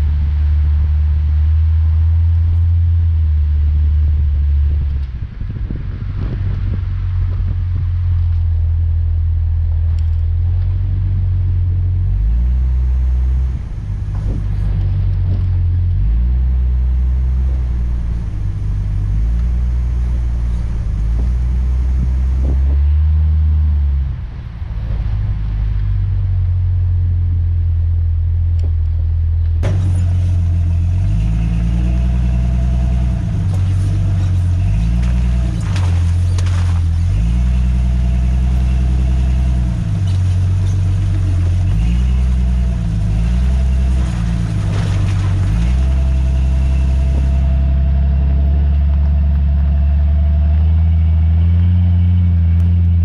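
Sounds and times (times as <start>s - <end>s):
car rumbling on the road: 0.0s - 53.0s.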